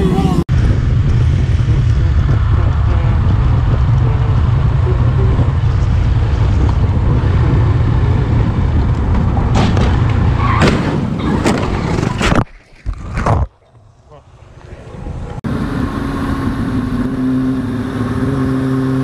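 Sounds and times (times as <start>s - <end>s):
motorcycle engine rumble: 0.0s - 12.3s
sharp crash bangs: 9.1s - 12.4s.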